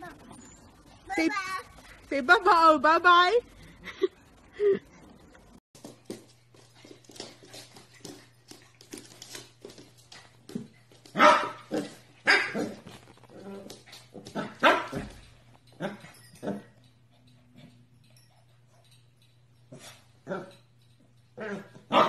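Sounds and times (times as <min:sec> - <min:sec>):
puppy barking: 0:11.1 - 0:12.8, 0:14.4 - 0:15.1, 0:21.4 - 0:22.0.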